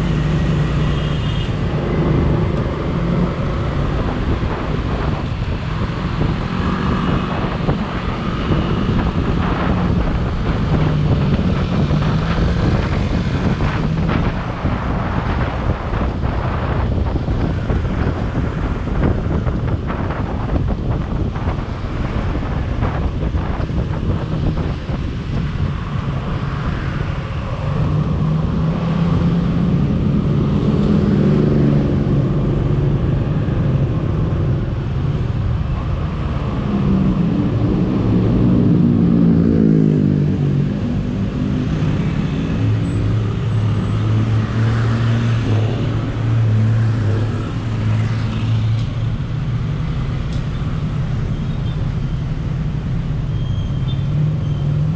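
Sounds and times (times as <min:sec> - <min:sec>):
wind and road noise: 0:00.0 - 0:54.9.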